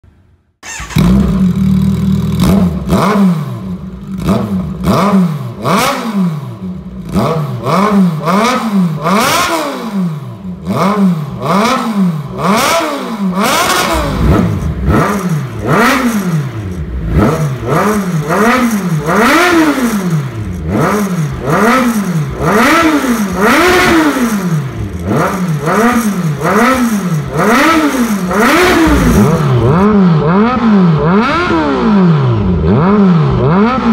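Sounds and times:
motorcycle engine revving: 0.6 - 33.9.

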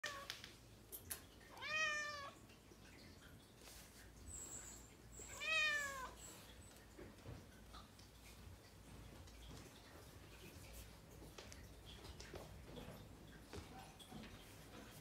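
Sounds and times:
cat meowing: 1.5 - 2.4, 5.3 - 6.2.

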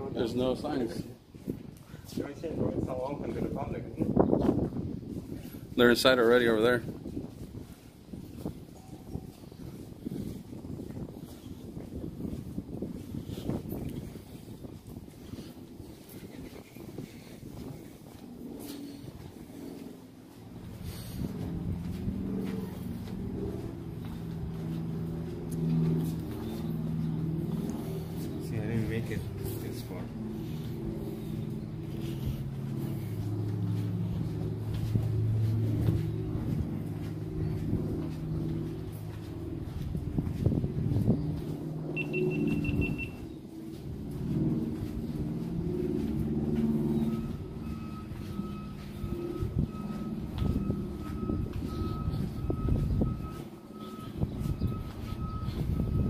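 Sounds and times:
vehicle engine rumbling: 0.0 - 56.0
short high beeps: 42.0 - 43.2.

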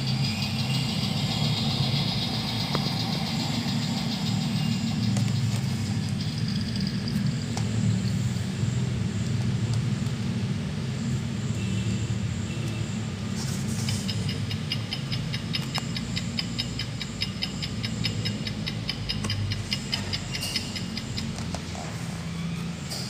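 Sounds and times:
steady low hum: 0.0 - 23.0
clock tick-tocking: 13.8 - 21.7.

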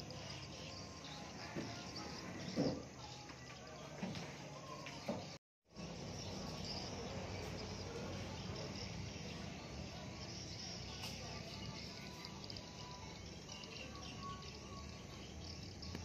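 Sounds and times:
insects chirring: 0.0 - 3.9, 5.8 - 16.0.

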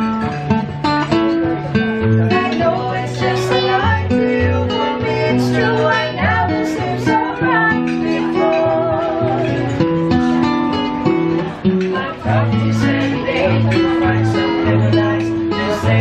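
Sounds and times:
acoustic guitar: 0.0 - 16.0
man and woman singing: 2.3 - 9.9, 11.8 - 16.0.

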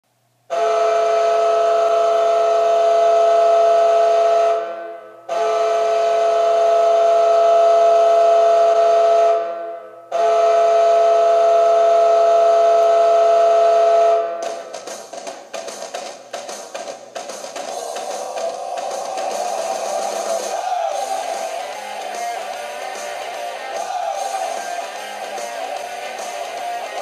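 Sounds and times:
arena goal horn blasts: 0.5 - 14.4.

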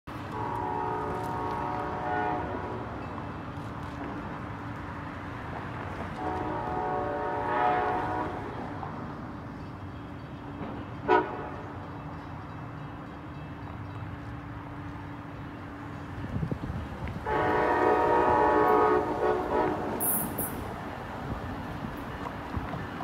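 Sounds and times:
low train rumble: 0.1 - 23.0
train horn blasts: 0.2 - 3.1, 6.1 - 8.9, 10.9 - 11.8, 17.2 - 20.6.

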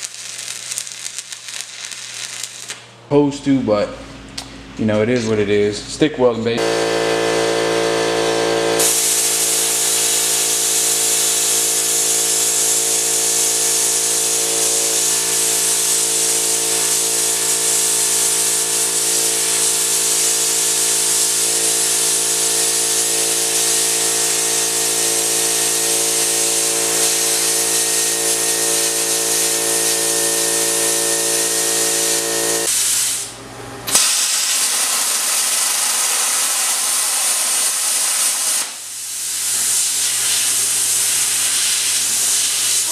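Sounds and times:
plasma cutter air hissing: 0.0 - 2.8, 8.6 - 42.9
multi-tone whine: 6.5 - 19.1, 22.4 - 32.7.

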